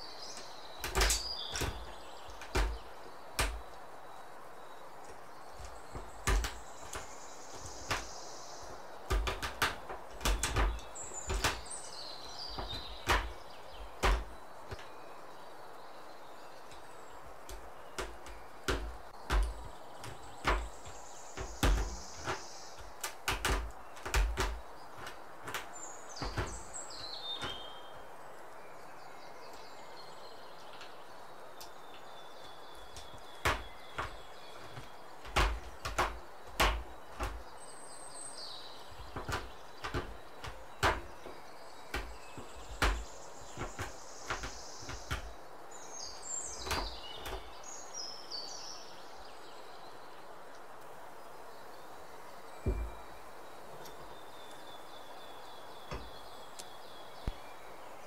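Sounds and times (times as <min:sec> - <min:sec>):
knife knocking on wooden board: 0:52.6 - 0:53.0.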